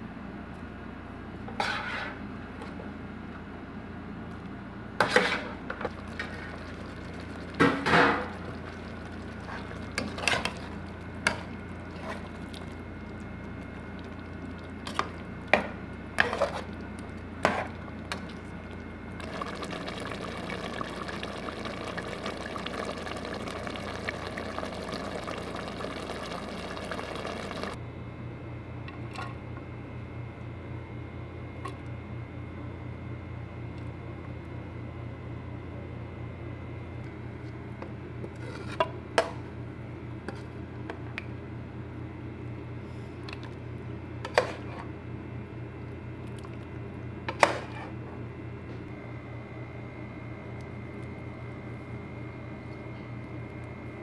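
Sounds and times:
low room hum: 0.0s - 54.0s
spoon scraping a cooking pot: 1.5s - 2.2s
sauce bubbling: 5.9s - 27.8s.

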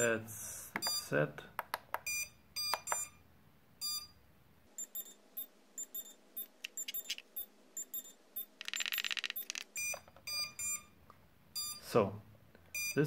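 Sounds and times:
short electronic beeps: 3.8s - 4.1s, 4.8s - 11.0s, 11.6s - 11.9s, 12.8s - 13.0s.

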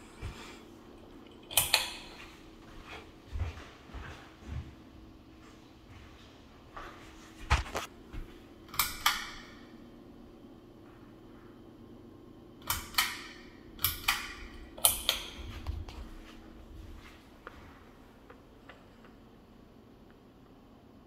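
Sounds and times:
fan motor humming: 0.0s - 21.0s
pull-chain switch clicks: 1.4s - 2.1s, 8.7s - 9.5s, 12.6s - 15.4s.

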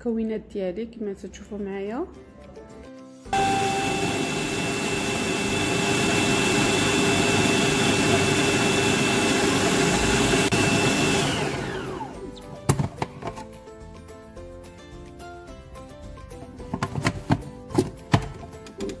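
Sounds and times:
food processor motor whine: 3.4s - 12.7s.

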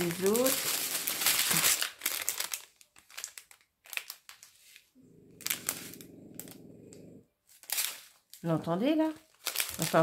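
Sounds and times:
plastic bags crinkling: 0.0s - 6.7s, 7.4s - 10.0s
dog snoring: 5.0s - 7.4s.

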